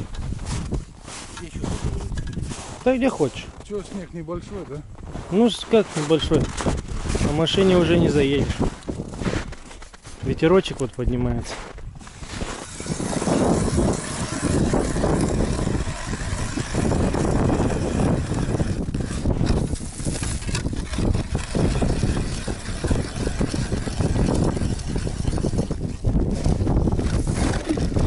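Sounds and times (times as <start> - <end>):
wind buffeting microphone: 0.0 - 3.6, 4.3 - 28.0
hand ice auger turning: 12.0 - 28.0.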